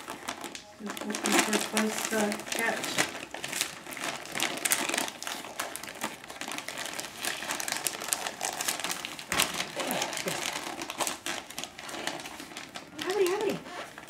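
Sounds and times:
wrapping paper crinkling: 0:00.0 - 0:14.0.

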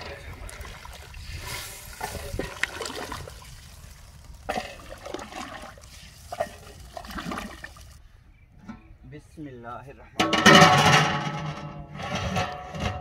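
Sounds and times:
rice and water sloshing in pot: 0:00.0 - 0:08.0.

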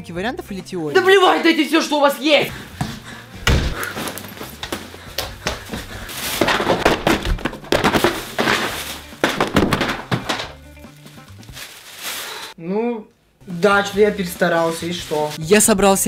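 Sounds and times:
heavy thump: 0:02.8 - 0:04.0
books dropping on carpet: 0:02.8 - 0:12.1.

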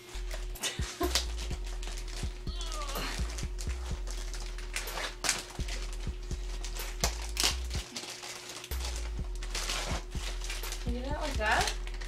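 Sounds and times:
steady low hum: 0:00.0 - 0:07.9, 0:08.7 - 0:12.0
packaging crinkling and rustling: 0:00.1 - 0:12.0.

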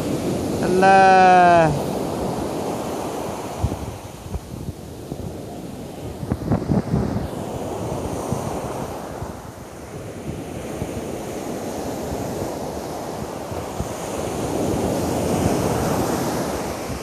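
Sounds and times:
ocean surf breaking on beach: 0:00.0 - 0:17.0
wind buffeting microphone: 0:01.7 - 0:17.0.

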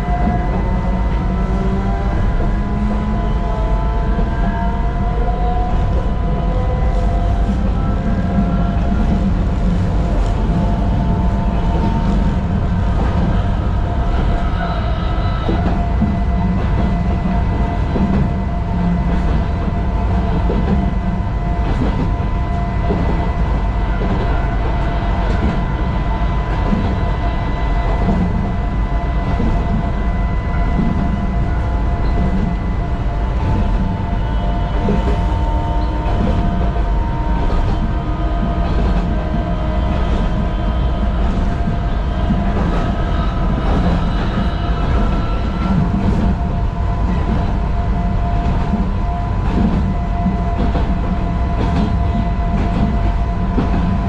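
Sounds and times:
train running rumble: 0:00.0 - 0:54.0.

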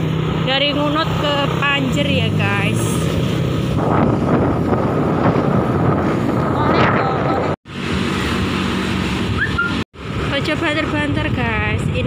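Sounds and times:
motorcycle engine hum: 0:00.0 - 0:12.0
wind buffeting microphone: 0:00.0 - 0:12.0.

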